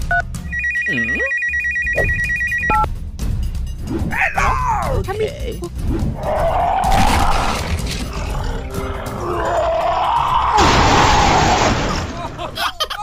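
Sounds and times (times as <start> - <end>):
background music: 0.0 - 13.0
rough monster roars: 6.1 - 11.6.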